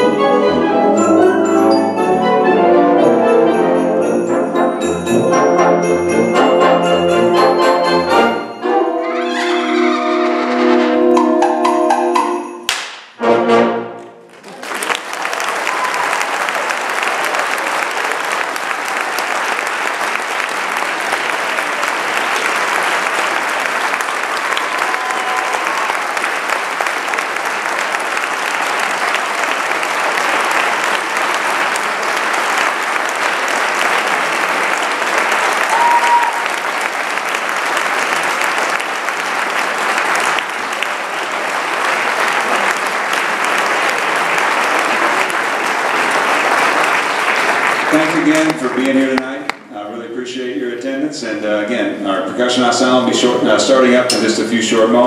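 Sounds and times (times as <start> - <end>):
concert band chord: 0.0 - 12.6
audience applauding: 14.3 - 49.6.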